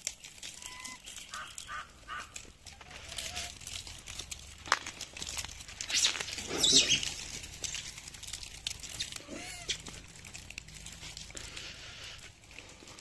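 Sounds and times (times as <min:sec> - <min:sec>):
peanut shells cracking and crunching: 0:00.0 - 0:13.0
monkey call: 0:00.6 - 0:03.6, 0:05.9 - 0:07.2.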